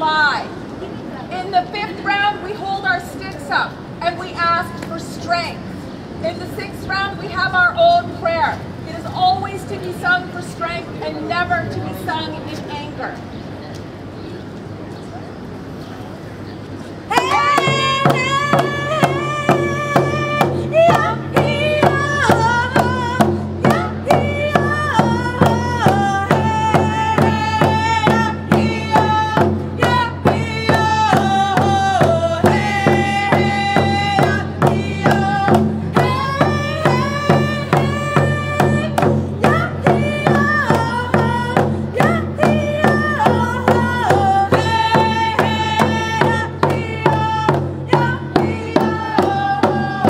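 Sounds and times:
frame drums beating: 17.1 - 50.0
women singing together: 17.1 - 50.0.

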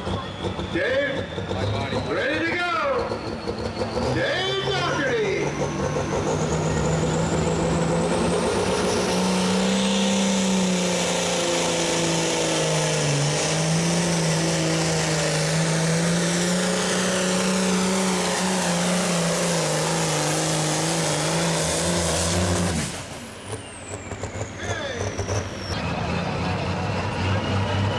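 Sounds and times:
tractor diesel engine at full load: 0.0 - 27.9.

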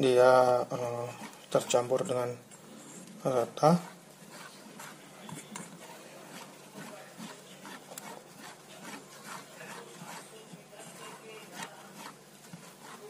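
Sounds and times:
spatula scraping steel bowl: 0.0 - 13.0.

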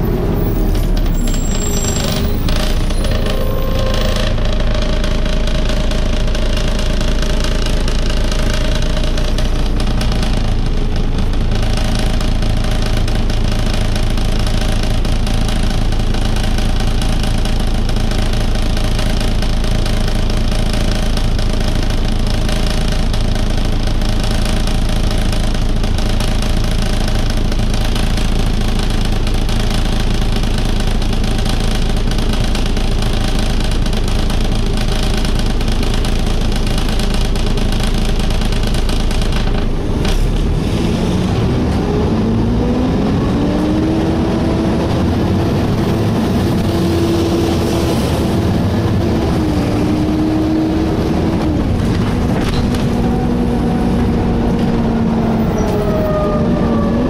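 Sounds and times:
bus accelerating whine: 0.0 - 19.0, 36.7 - 57.0
bus engine idling: 0.0 - 40.5, 43.8 - 57.0.

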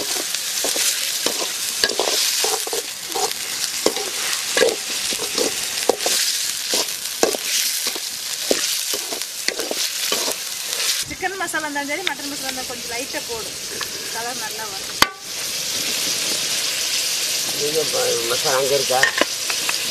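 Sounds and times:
metal spoon scraping a pan: 0.0 - 11.0, 13.6 - 14.2
meat sizzling in a metal pan: 0.0 - 19.9.

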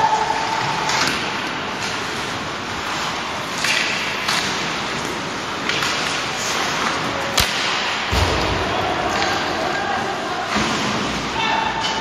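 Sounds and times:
skates scraping on ice: 0.2 - 7.9
sharp crack: 7.3 - 9.4.

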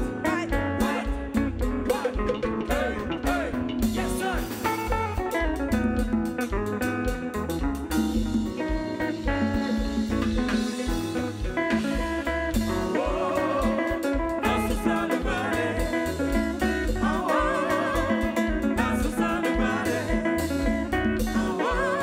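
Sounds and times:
repeating bass line: 0.0 - 5.2, 11.4 - 22.0
drums: 0.0 - 22.0
electric guitar: 0.0 - 22.0
wavering lead line: 12.6 - 22.0.

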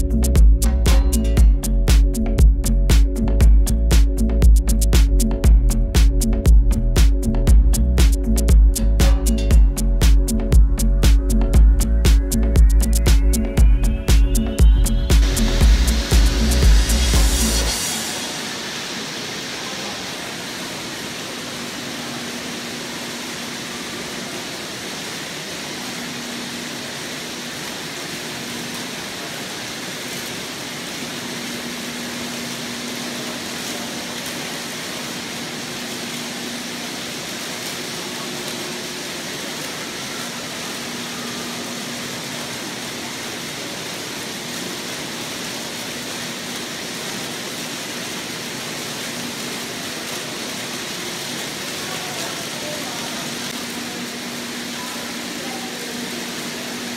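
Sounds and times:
low motor hum: 0.0 - 18.4.

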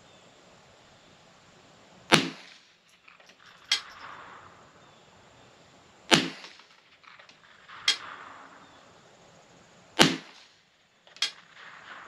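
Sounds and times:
gunshots with echo: 2.1 - 2.6, 6.1 - 8.9, 10.0 - 10.5.

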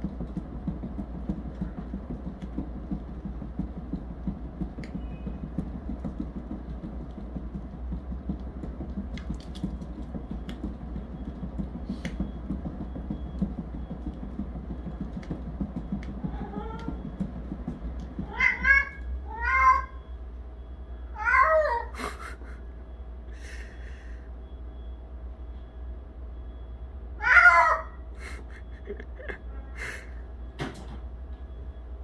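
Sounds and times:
cat exercise wheel rumbling: 0.0 - 20.0.

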